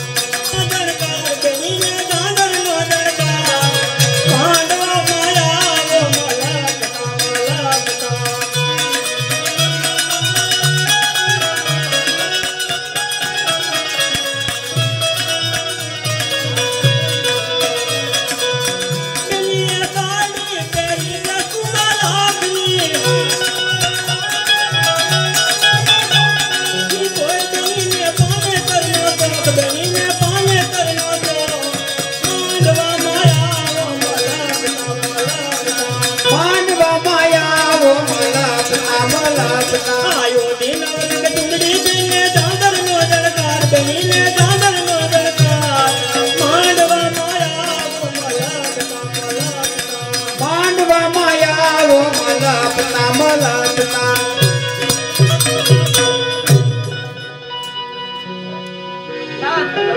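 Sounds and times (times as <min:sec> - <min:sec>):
live folk music: 0:00.0 - 0:59.9.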